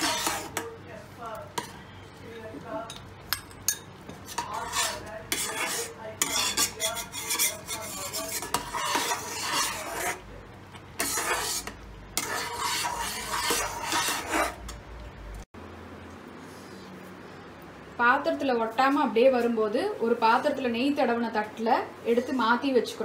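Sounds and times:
metal spatula scraping pan: 0.0 - 0.8, 3.7 - 10.3, 11.0 - 14.8.

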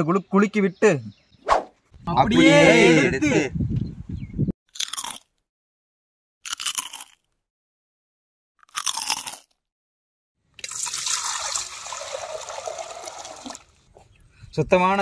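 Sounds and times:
water splashing into a metal bowl: 10.6 - 13.7.

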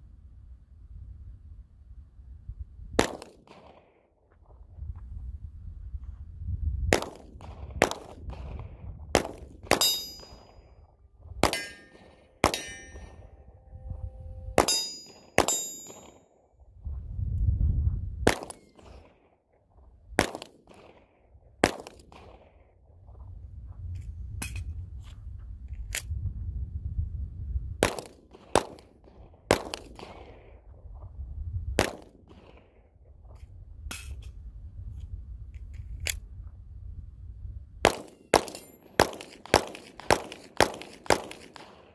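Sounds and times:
handgun shots: 9.2 - 10.4, 11.4 - 13.1, 14.6 - 16.2, 37.9 - 41.9
short metallic ring: 9.8 - 10.8, 11.5 - 16.3.

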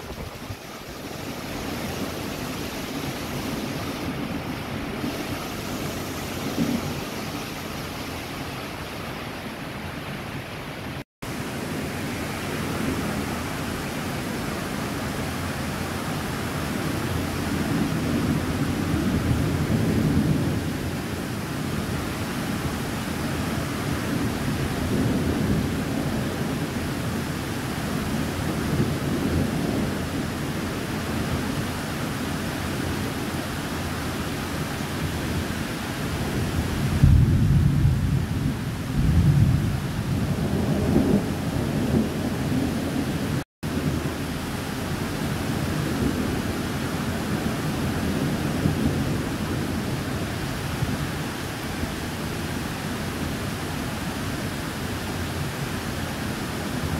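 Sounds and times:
heavy rain hissing: 0.0 - 56.9
low rolling thunder: 1.5 - 8.0, 16.9 - 21.9, 23.8 - 26.9, 28.0 - 31.7, 36.2 - 51.1.

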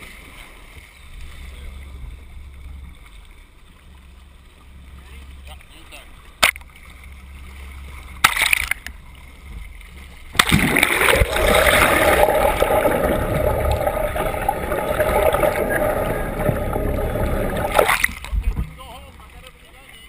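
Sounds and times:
sea water splashing and rushing: 5.0 - 19.9.

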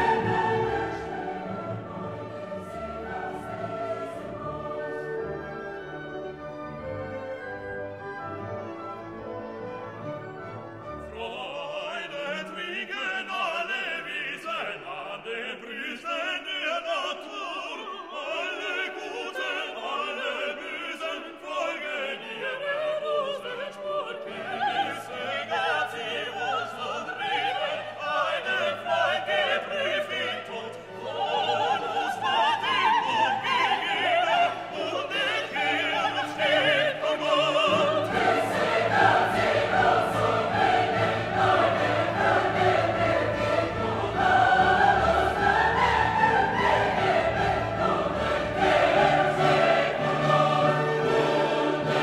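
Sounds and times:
operatic singing: 0.0 - 6.8, 10.9 - 52.0
orchestral accompaniment: 0.0 - 12.9, 24.2 - 52.0.

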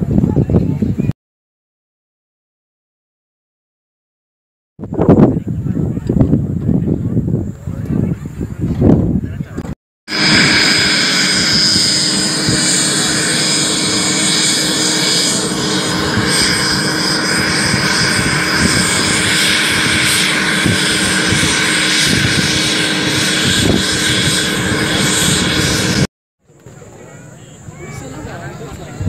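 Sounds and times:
helicopter turbine engine running: 10.1 - 26.1.

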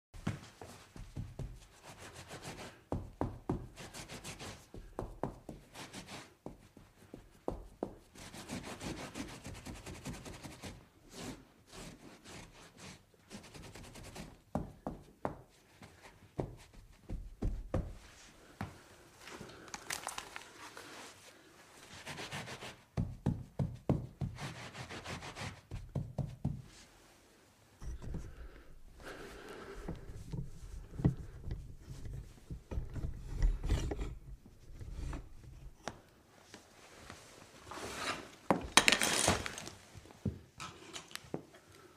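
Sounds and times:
rubbing and wiping: 0.3 - 14.4, 20.4 - 23.1, 24.1 - 27.2, 27.8 - 35.8
knocks and clunks of objects: 27.8 - 36.0, 38.5 - 41.2.

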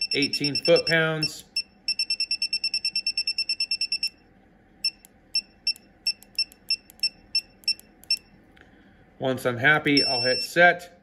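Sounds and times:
keypad beeping: 0.0 - 4.2, 4.8 - 8.3, 10.0 - 10.5.

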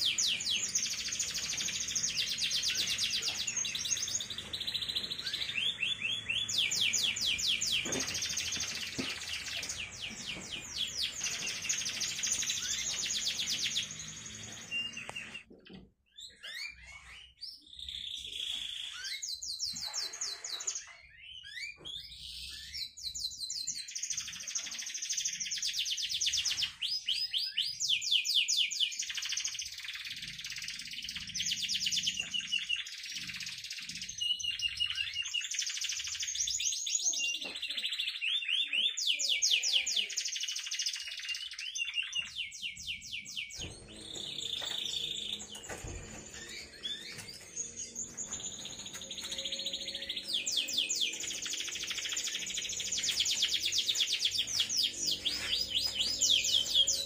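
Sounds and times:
canary singing trills: 0.0 - 57.0.

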